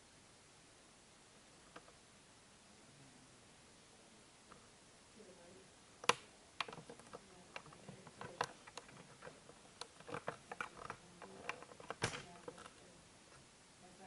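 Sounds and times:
faint clicks and knocks: 0:01.6 - 0:02.0, 0:06.0 - 0:13.5.

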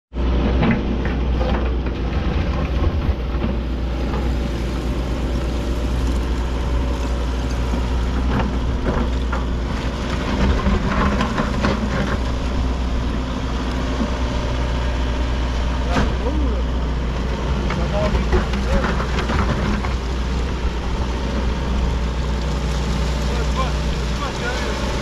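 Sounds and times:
diesel engine running: 0:00.1 - 0:25.0
clunks and scrapes of debris: 0:00.2 - 0:25.0.

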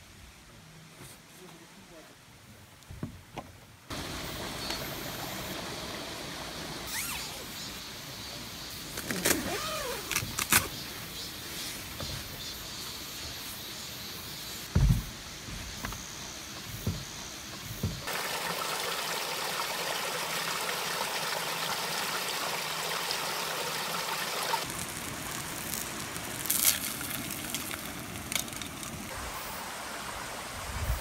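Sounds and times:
stream water rushing: 0:03.9 - 0:08.0, 0:18.0 - 0:31.0.

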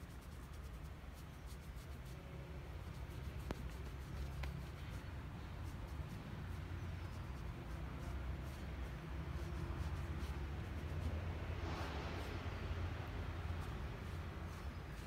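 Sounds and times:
damp sponge rubbing on clay: 0:00.0 - 0:15.0
steady low rumble: 0:02.3 - 0:15.0.

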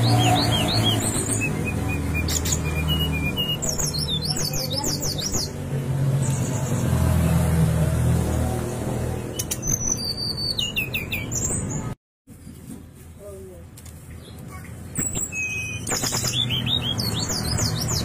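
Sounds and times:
bird singing whistled notes: 0:00.0 - 0:05.6, 0:09.3 - 0:11.9, 0:14.9 - 0:18.0.

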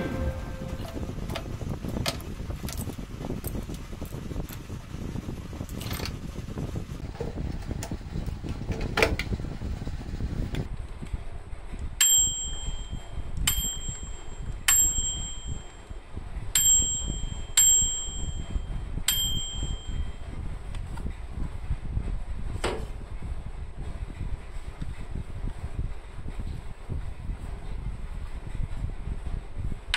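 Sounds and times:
low handling noise: 0:00.0 - 0:29.9
microwave timer bell dinging: 0:12.0 - 0:16.0, 0:16.6 - 0:20.3.

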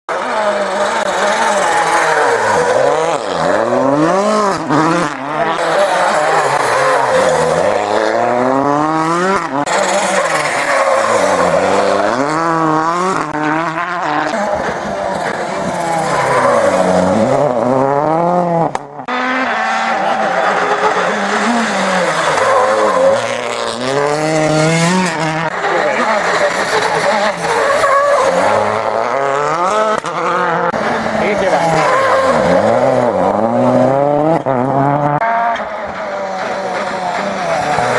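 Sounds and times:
rally car engines revving: 0:00.1 - 0:37.9.

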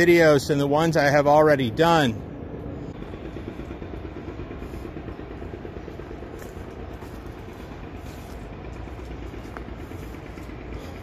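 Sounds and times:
steady low rumble: 0:00.0 - 0:11.0
footsteps on dirt path: 0:04.5 - 0:11.0.

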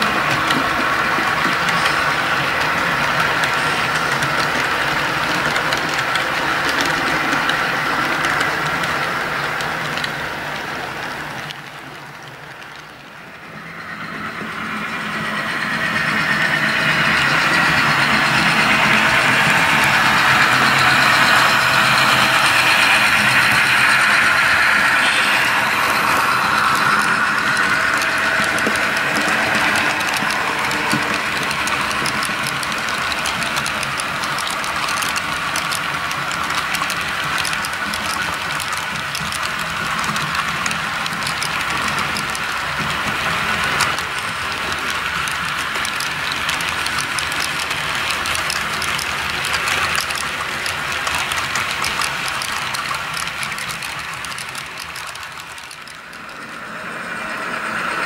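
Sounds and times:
model train wheels ticking on track: 0:00.0 - 0:58.0
diesel engine sound from small speaker: 0:17.0 - 0:34.0.

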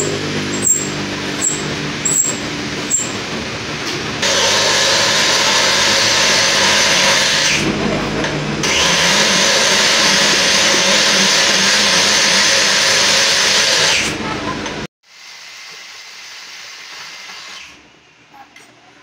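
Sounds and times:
power drill cutting whir: 0:04.2 - 0:07.7, 0:08.6 - 0:14.2.

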